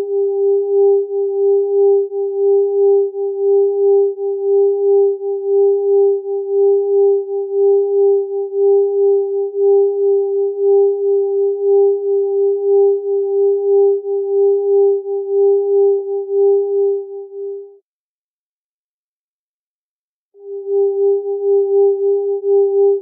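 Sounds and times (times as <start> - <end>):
beating electronic sine tones: 20.4 - 23.0.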